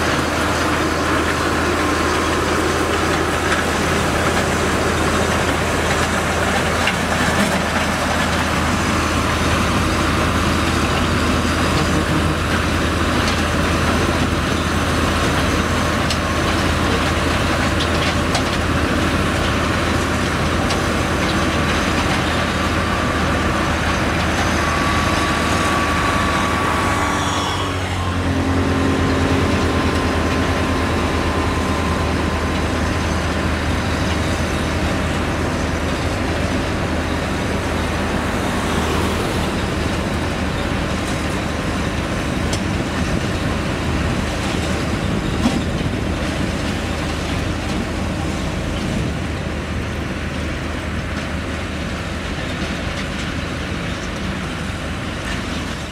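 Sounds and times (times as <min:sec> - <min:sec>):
gravel grinding and crunching: 0:00.0 - 0:27.1
diesel engines running: 0:00.0 - 0:55.9.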